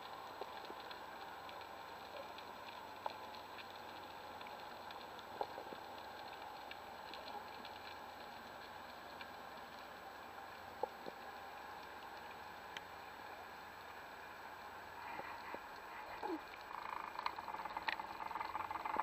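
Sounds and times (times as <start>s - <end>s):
small underwater clicks and crackles: 0.0s - 19.0s
faint underwater hiss: 12.6s - 19.0s.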